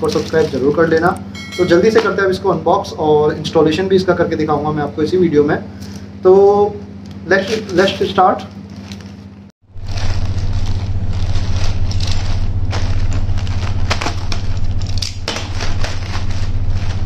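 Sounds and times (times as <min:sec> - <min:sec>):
plastic mailer crinkling: 0:00.0 - 0:01.2, 0:07.4 - 0:17.0
steady low hum: 0:00.0 - 0:17.0.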